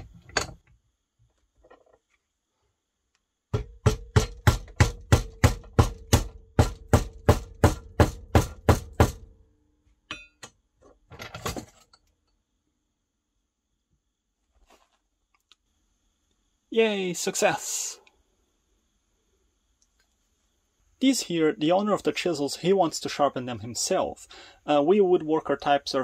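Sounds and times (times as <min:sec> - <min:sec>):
mallet knocking on wooden handle: 0:03.6 - 0:09.2.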